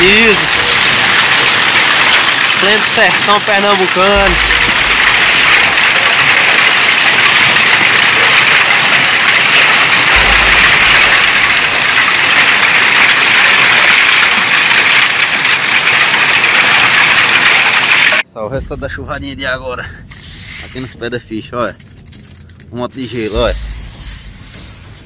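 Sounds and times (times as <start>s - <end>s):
hail and rain pelting down: 0.0s - 18.3s, 19.0s - 25.0s
low rumble: 4.1s - 7.2s, 9.9s - 13.0s, 18.3s - 25.0s.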